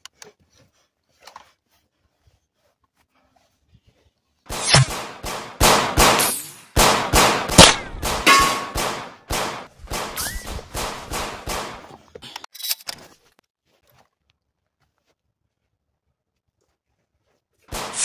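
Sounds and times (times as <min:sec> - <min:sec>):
gunshots: 0:04.5 - 0:11.9, 0:17.7 - 0:18.0.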